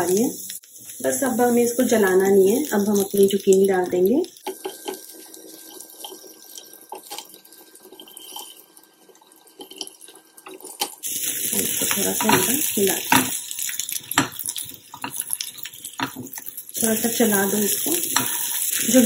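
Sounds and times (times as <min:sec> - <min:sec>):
food sizzling in a pan: 0:00.0 - 0:19.0
spatula scraping a pan: 0:07.9 - 0:08.7.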